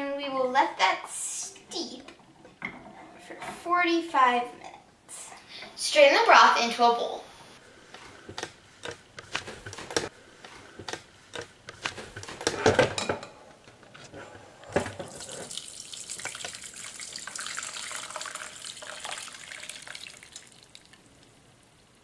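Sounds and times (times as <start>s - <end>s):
broth pouring through strainer: 15.1s - 21.0s.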